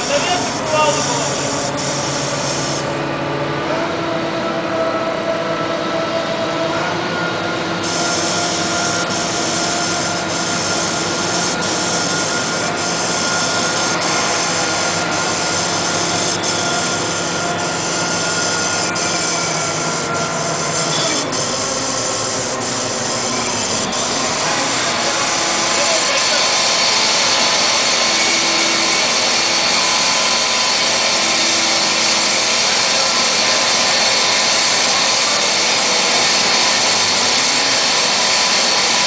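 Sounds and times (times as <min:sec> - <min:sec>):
paint sprayer motor hissing: 0:00.0 - 0:03.0, 0:07.8 - 0:39.0.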